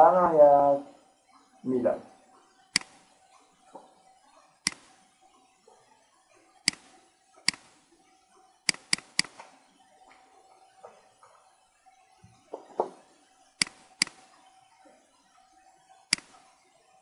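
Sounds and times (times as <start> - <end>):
faint steady hum: 0.0 - 17.0
computer mouse clicking: 2.6 - 3.1, 4.6 - 5.0, 6.6 - 7.8, 8.6 - 9.5, 13.6 - 14.3, 16.1 - 16.5.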